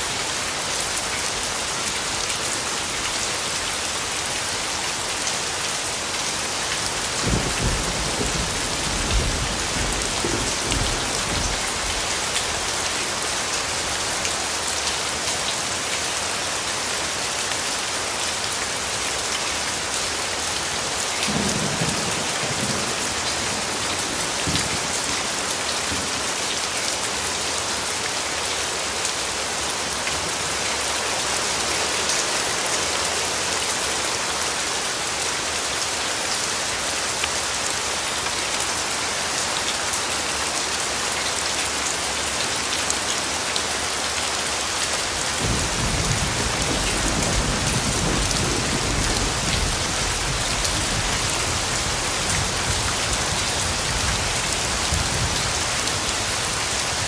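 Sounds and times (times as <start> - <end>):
steady rain falling: 0.0 - 57.0
low rumble of thunder: 7.2 - 12.0, 45.4 - 55.4.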